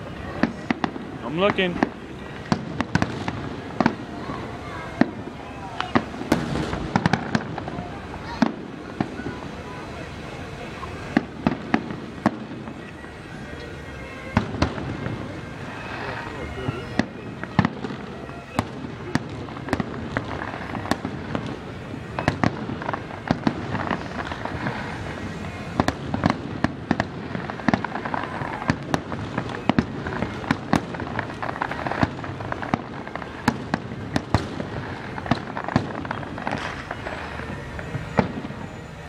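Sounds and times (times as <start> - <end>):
continuous noisy wash: 0.0 - 39.0
firework shells bursting: 11.1 - 38.8.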